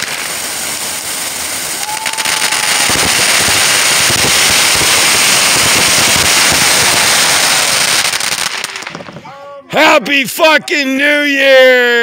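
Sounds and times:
firework whistle: 0.0 - 8.8
fireworks crackling: 0.0 - 11.9.

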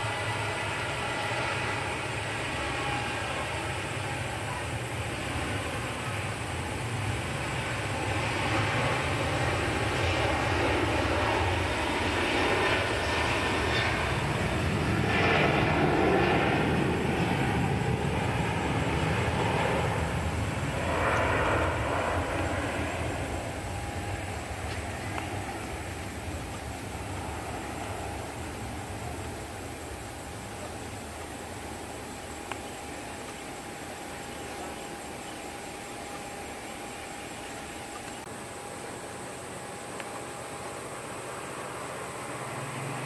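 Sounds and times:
jet engine roar: 0.0 - 43.0.

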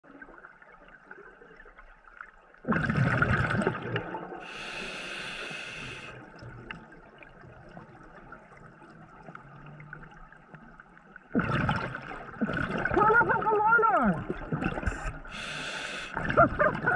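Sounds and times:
exhaled bubbles rushing underwater: 0.0 - 16.9
scuba regulator hiss: 4.5 - 6.1, 15.0 - 16.2.

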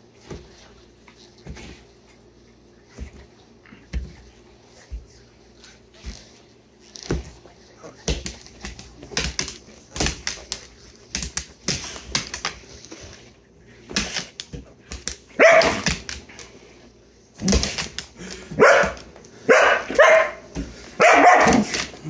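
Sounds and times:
dog barking: 15.4 - 15.8, 18.6 - 21.7.

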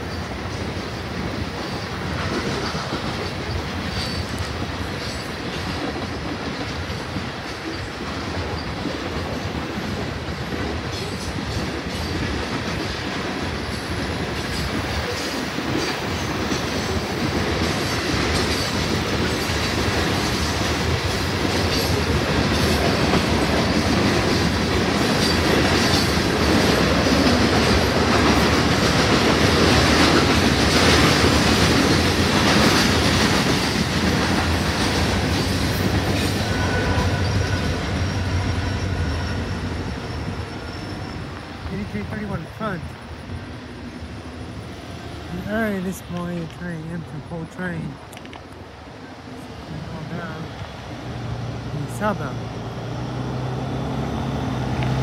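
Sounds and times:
train wheels clacking over rail joints: 0.0 - 40.3
wheel squeal: 36.4 - 41.4.

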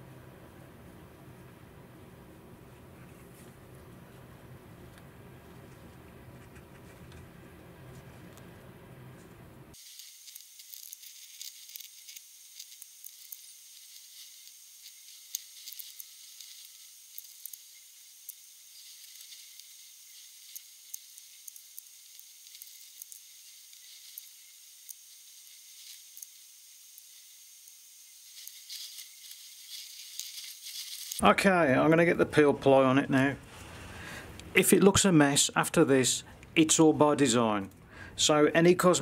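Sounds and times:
steady high hiss: 8.5 - 39.0
sticky crackling and clicks: 9.8 - 25.1.

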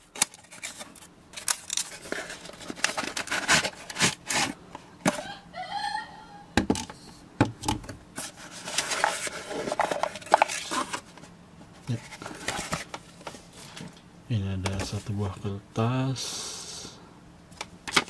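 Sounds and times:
cardboard box being opened: 0.5 - 4.6.

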